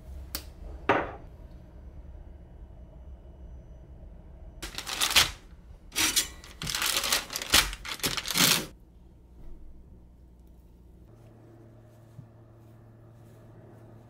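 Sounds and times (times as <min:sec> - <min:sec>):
wrapper crinkling and rustling: 0:04.6 - 0:08.8.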